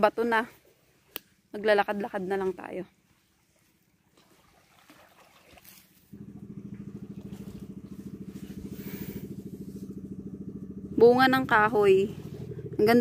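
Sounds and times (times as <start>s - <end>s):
small engine running: 6.1s - 13.0s.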